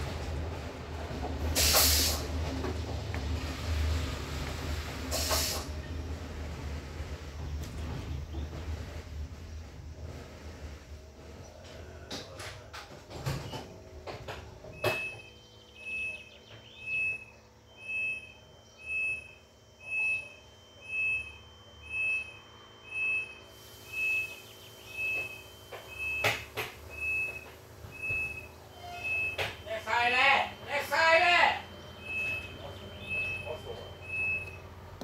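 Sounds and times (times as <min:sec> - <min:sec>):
electronic warning beeps: 0:14.7 - 0:34.7.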